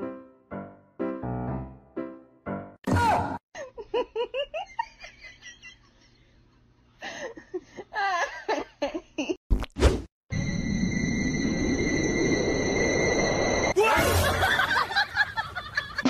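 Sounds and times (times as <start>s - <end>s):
loud squeal: 10.3s - 14.6s
person laughing: 13.9s - 16.0s.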